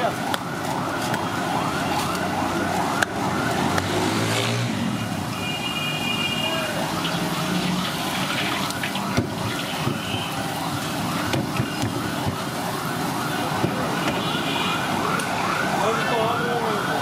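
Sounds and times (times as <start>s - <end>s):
siren yelping: 0.0s - 17.0s
oil sizzling in deep frying: 6.8s - 12.6s.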